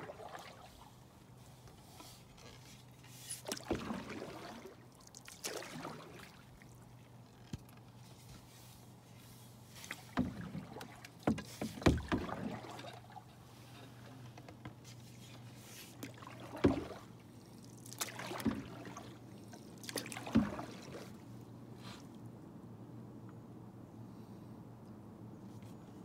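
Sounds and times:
paddle splashing in water: 0.0 - 7.3, 8.2 - 21.4
paddle knocking canoe side: 9.8 - 13.2, 15.8 - 17.0.

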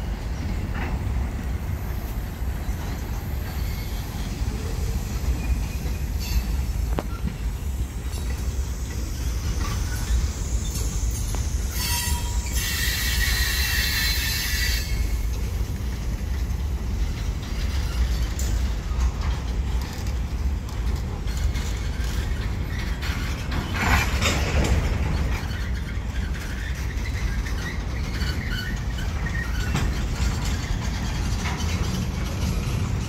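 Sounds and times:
train wheels rumbling on rail: 0.0 - 33.0
high-pitched wheel squeal: 9.1 - 15.2, 25.3 - 32.0.

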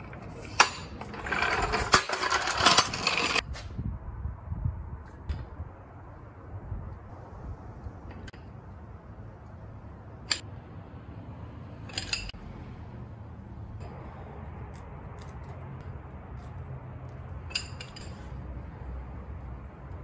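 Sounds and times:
metal socket clinking on lug nuts: 17.4 - 18.3.

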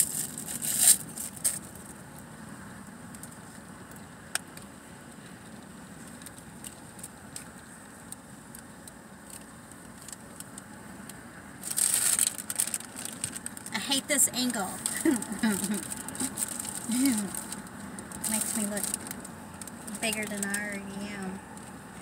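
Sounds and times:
paper wrapper rustling: 0.0 - 1.7, 11.6 - 13.8, 14.4 - 20.7
car engine hum: 0.0 - 22.0.

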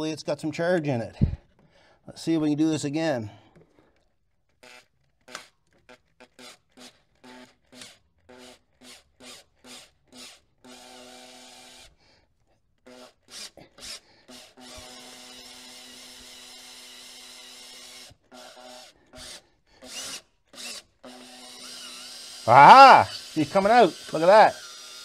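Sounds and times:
cordless drill spinning: 4.5 - 12.0, 12.8 - 25.0.

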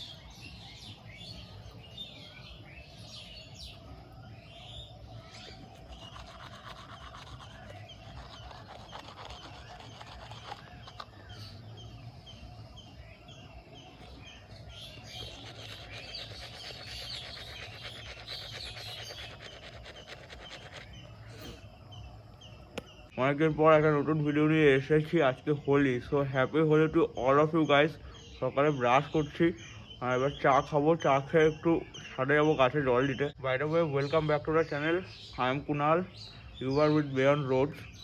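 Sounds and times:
quick repeated bird calls: 0.0 - 23.2
steady low hum: 0.0 - 24.0
birds chirping and calling: 0.0 - 38.0.

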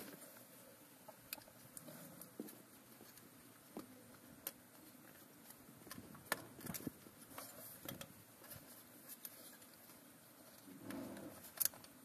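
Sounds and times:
clicks taps and scrapes of metal parts: 1.0 - 12.0.

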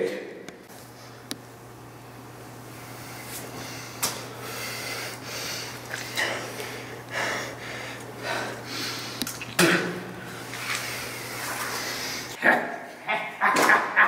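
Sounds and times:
steady low hum: 0.0 - 14.0
man breathing hard: 2.8 - 9.3, 10.8 - 12.4.

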